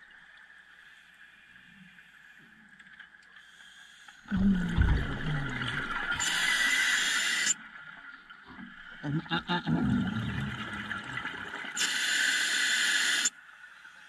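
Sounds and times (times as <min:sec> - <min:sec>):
exhaled bubbles underwater: 0:04.3 - 0:06.8, 0:08.7 - 0:11.8.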